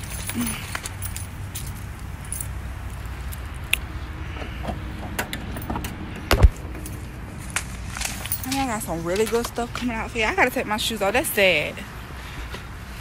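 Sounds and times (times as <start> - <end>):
keys jingling: 0.0 - 3.5.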